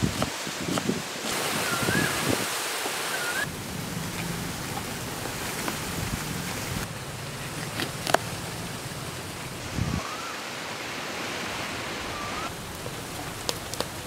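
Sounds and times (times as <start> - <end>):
wind hiss on microphone: 0.0 - 4.8, 9.5 - 14.0
warbling whistle: 1.5 - 2.3, 3.0 - 3.5, 9.8 - 10.5, 12.0 - 12.5.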